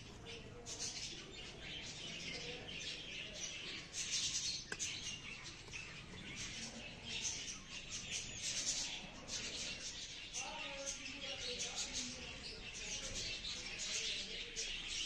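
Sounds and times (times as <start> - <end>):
small birds chirping: 0.0 - 15.0
sharp tap: 4.7 - 4.9.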